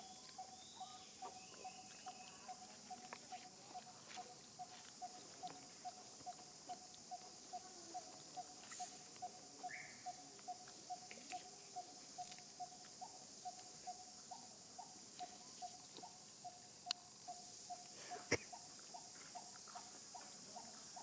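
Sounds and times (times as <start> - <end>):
insects droning: 0.0 - 21.0
faint ticks: 15.1 - 20.8.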